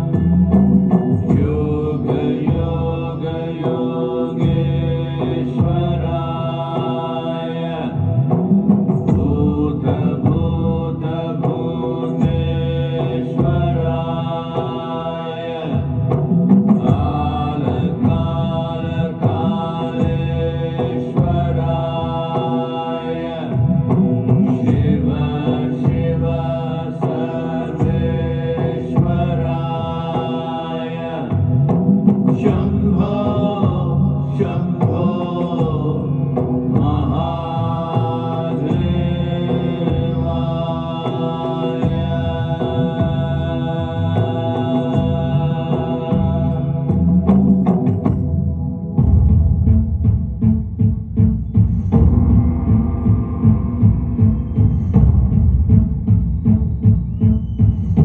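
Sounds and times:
steady drone: 0.0 - 58.0
mantra chanting: 1.3 - 8.0, 32.4 - 47.0.

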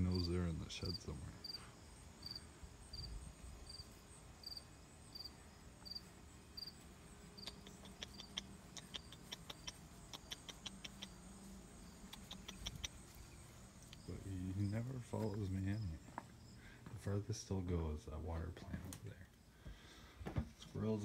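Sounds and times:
cricket chirping: 0.0 - 20.1
footsteps on grass: 12.9 - 17.2.

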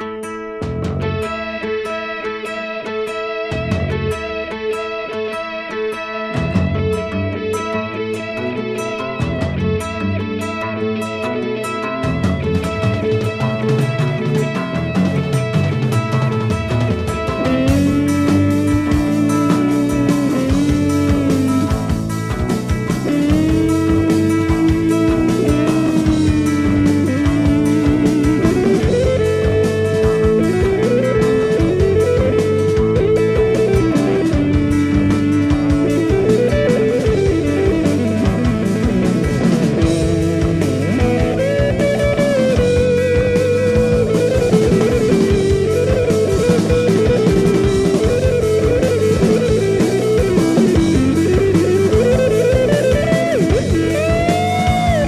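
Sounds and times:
drum kit: 0.0 - 55.0
electric guitar: 0.0 - 55.0.

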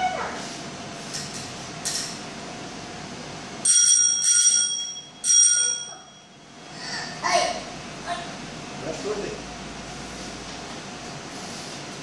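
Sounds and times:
bicycle bell ringing: 3.6 - 6.5.

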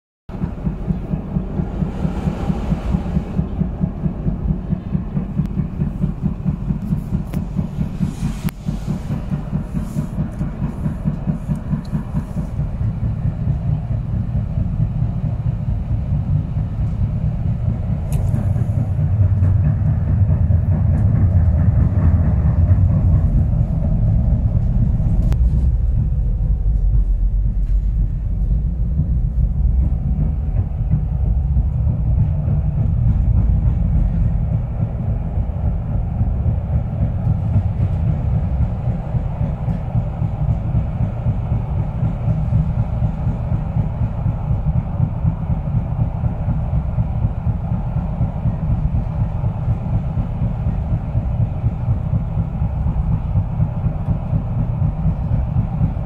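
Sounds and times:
tram rumbling with fast pulsing: 0.3 - 56.0.

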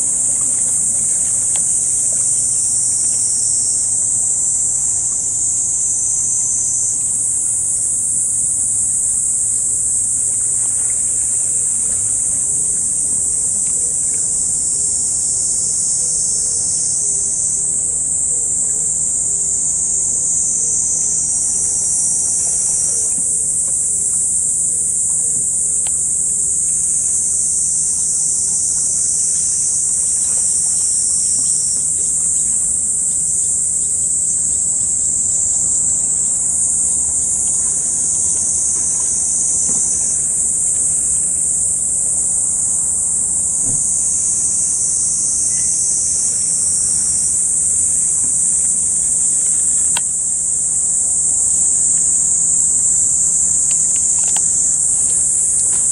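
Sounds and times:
insects buzzing chorus: 0.0 - 55.9.

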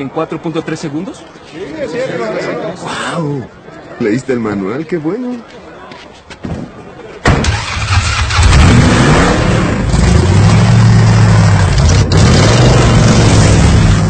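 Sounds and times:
car engine revving hard: 7.5 - 14.0.

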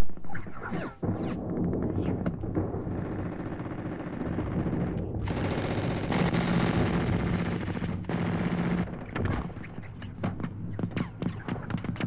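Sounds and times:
gunshots: 0.2 - 12.0
machine-gun fire: 1.0 - 9.8.

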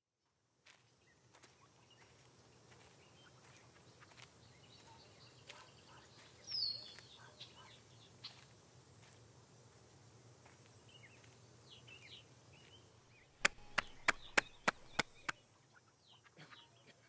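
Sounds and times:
faint bird chirps: 1.0 - 8.5.

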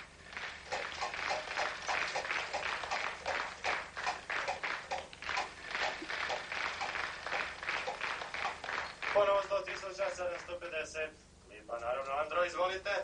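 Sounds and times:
prize wheel spinning and clacking: 0.6 - 9.5.

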